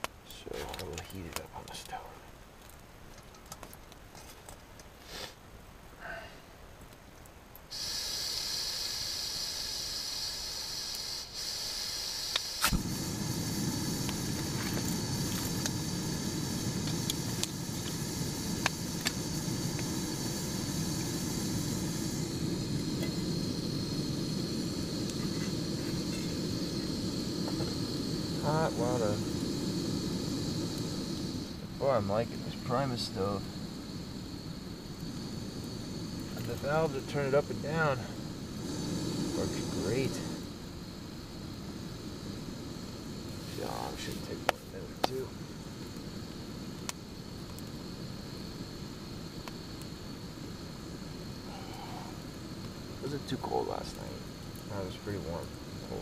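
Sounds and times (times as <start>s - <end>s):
flame burning with low rush: 0.0s - 56.0s
gas stove hissing: 5.0s - 5.4s, 7.7s - 56.0s
burner igniter click: 12.3s - 15.9s.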